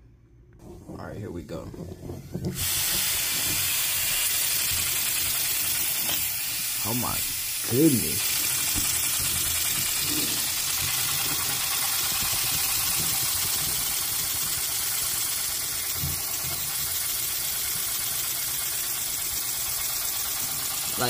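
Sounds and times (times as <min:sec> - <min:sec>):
small air engine clattering: 0:08.2 - 0:21.0.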